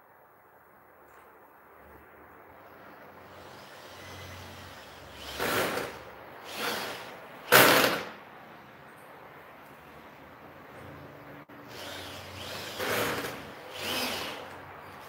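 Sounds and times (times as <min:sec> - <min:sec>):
electric drill bursts: 0:03.3 - 0:08.2, 0:11.6 - 0:15.0.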